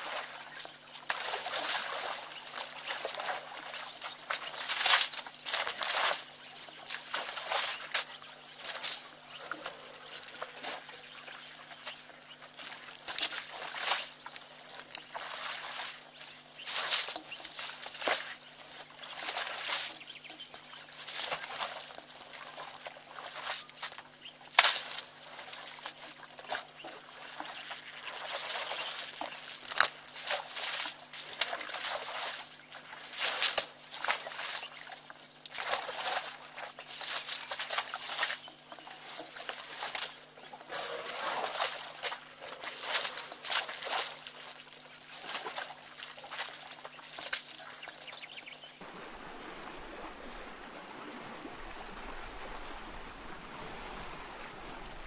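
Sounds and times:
elephant splashing muddy water: 0.0 - 11.1, 12.6 - 14.3, 15.0 - 20.1, 20.9 - 23.9, 26.5 - 47.8, 48.8 - 55.0
steady low hum: 38.0 - 55.0.

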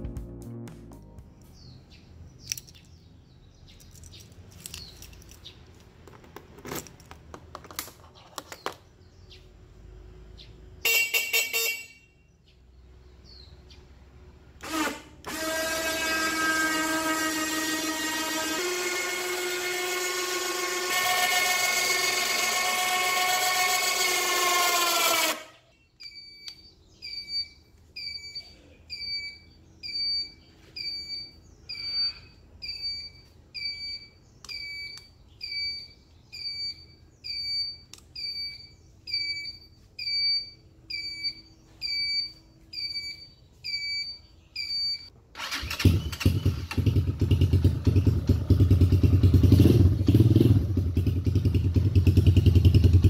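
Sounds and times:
winch motor whining: 14.6 - 25.6
quad bike engine running: 17.4 - 24.8, 45.8 - 53.0
short electronic beeps: 26.0 - 45.1.

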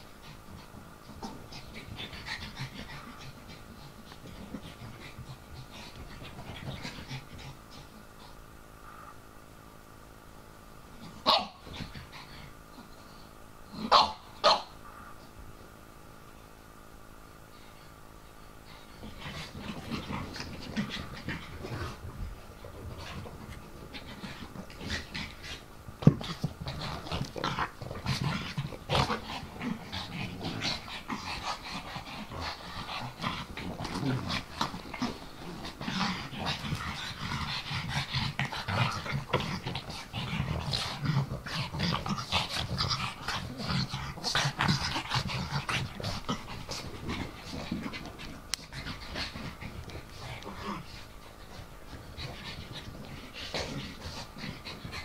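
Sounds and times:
dogs play-fighting: 0.0 - 9.3, 10.7 - 15.7, 17.3 - 55.0
dogs breathing heavily: 18.6 - 55.0.

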